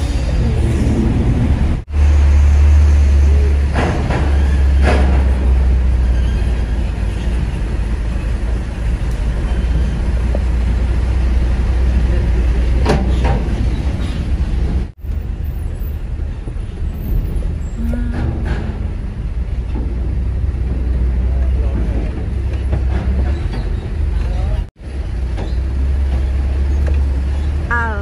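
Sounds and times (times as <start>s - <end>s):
truck engine drone: 0.0s - 28.0s
truck clunking over ramp: 3.6s - 10.5s, 18.1s - 24.6s.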